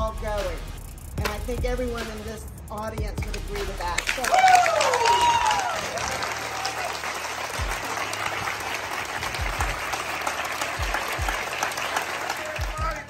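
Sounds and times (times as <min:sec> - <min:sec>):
crowd applauding: 0:04.0 - 0:13.0.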